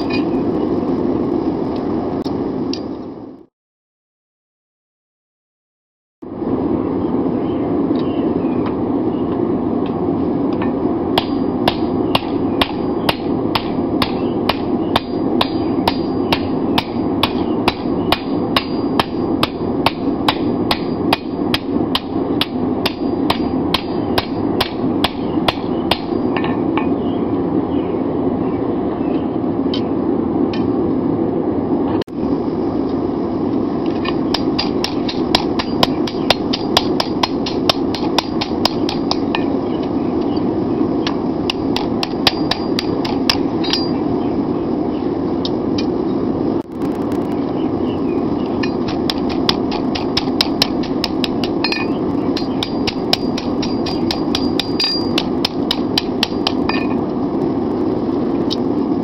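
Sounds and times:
steady rushing noise: 0.0 - 3.5, 6.2 - 59.0
hammer striking hot steel on anvil: 10.6 - 26.6, 34.1 - 39.5, 41.0 - 44.0, 48.6 - 57.0.

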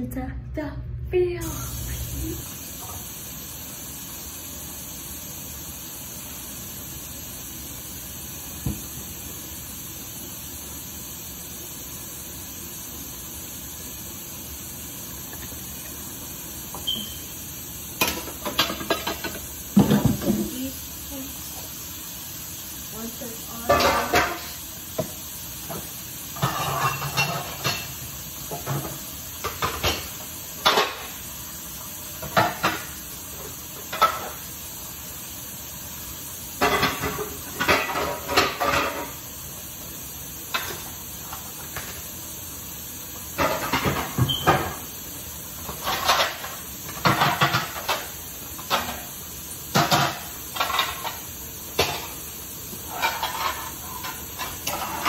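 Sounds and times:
steady hiss: 1.4 - 55.0
dishes and plates clattering: 18.0 - 20.5, 23.6 - 24.6, 25.7 - 31.1, 32.2 - 32.9, 33.9 - 34.4, 36.6 - 39.2, 43.4 - 44.8, 45.7 - 49.0, 49.7 - 52.2, 52.9 - 55.0.

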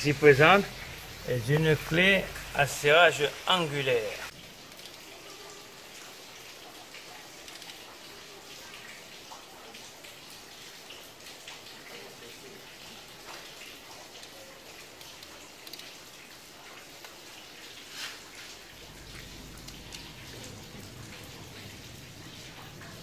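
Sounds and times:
steady hiss: 0.0 - 5.0
metallic ticks and clicks of tools: 15.1 - 15.9.

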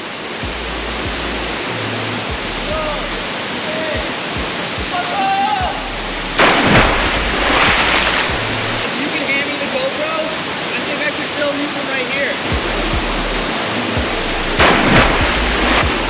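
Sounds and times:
waterfall rushing: 0.0 - 16.0
person splashing into water: 6.4 - 8.9, 14.6 - 15.9.

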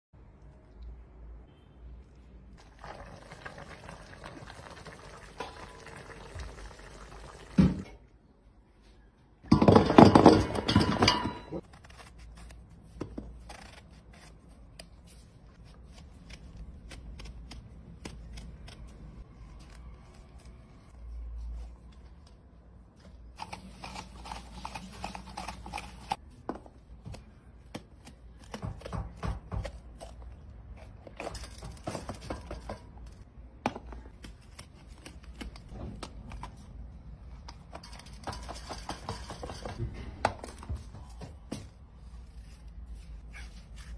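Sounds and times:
knife cutting vegetables: 23.4 - 26.2.

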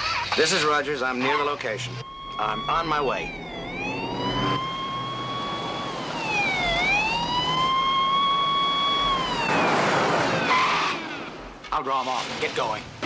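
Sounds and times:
police car siren wailing: 1.5 - 11.3.

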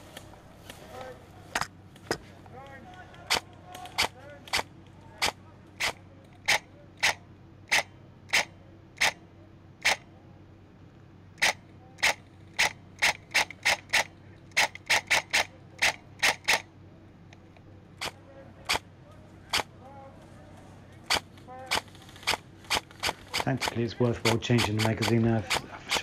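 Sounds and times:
airsoft rifle shots clicking: 2.9 - 9.2, 9.8 - 10.0, 11.4 - 16.7, 21.0 - 26.0.

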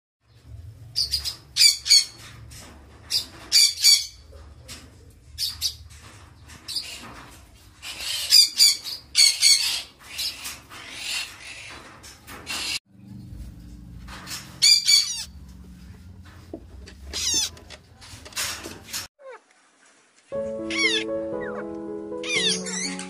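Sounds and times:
parrots squawking: 1.0 - 2.2, 7.8 - 12.8, 14.5 - 15.4, 17.0 - 17.5, 20.7 - 21.6, 22.2 - 23.0.

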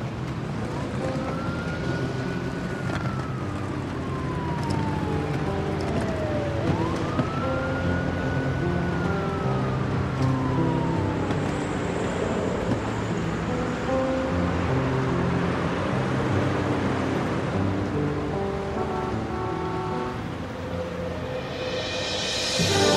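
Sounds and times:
emergency vehicle siren wailing: 0.6 - 13.7, 18.4 - 22.9.

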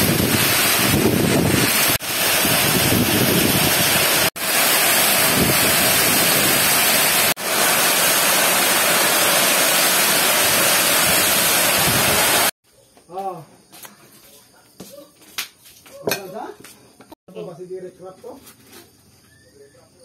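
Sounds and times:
heavy rain with wind: 0.0 - 12.5.

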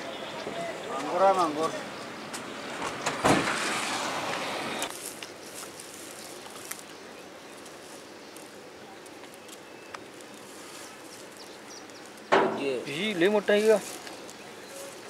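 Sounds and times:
steady hiss: 4.1 - 15.0.

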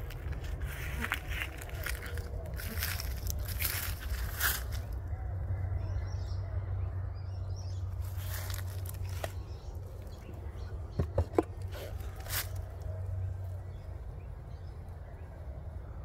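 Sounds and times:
steady low rumble: 0.0 - 16.0
wooden cover scraping: 10.9 - 12.6
sharp wooden knocks: 11.0 - 11.6.

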